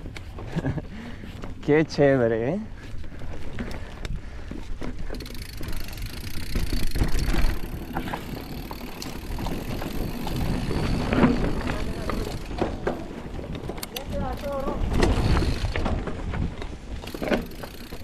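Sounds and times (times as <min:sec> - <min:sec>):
bike clicks and rattles: 0:00.0 - 0:18.0
tyres rolling over dirt and stones: 0:00.2 - 0:18.0
wind rumble on microphone: 0:09.4 - 0:17.3.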